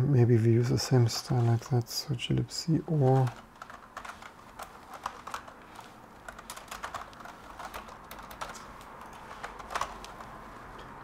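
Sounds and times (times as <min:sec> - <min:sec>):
typing on computer keyboard: 0:03.2 - 0:10.4.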